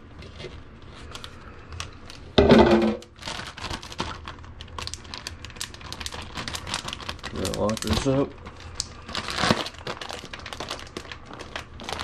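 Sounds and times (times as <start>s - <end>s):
plastic bag crinkling: 3.0s - 12.0s.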